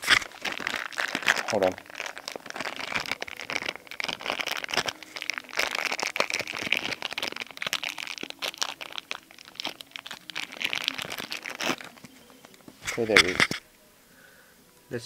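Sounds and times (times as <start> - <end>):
plastic packaging crinkling: 0.0 - 13.6.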